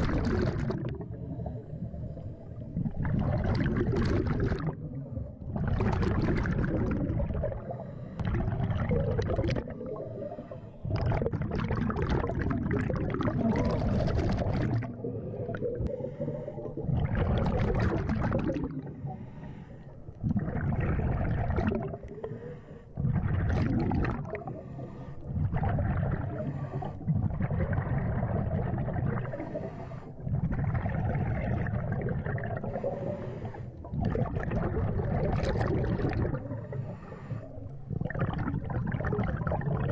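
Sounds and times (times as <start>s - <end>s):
bubbling exhalations: 0.0s - 39.9s
diver breathing through regulator: 7.6s - 8.5s, 9.6s - 10.9s, 15.0s - 17.1s, 18.6s - 27.3s, 29.1s - 31.3s, 32.6s - 34.8s, 36.1s - 38.0s.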